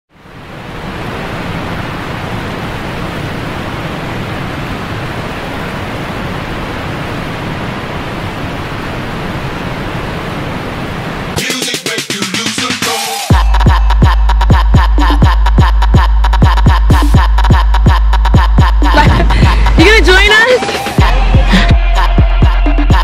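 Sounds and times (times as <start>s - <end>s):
fountain water spray rushing: 0.2s - 11.4s.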